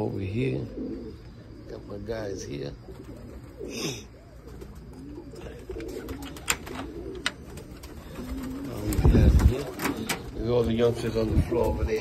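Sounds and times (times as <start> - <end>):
pigeons cooing: 0.0 - 12.0
pigeon wings fluttering: 5.8 - 10.3.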